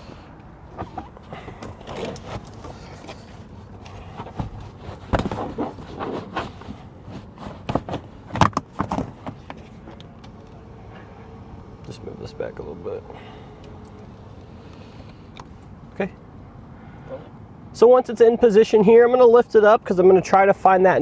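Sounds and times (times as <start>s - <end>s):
rubber mat scraping carpet: 4.2s - 8.1s.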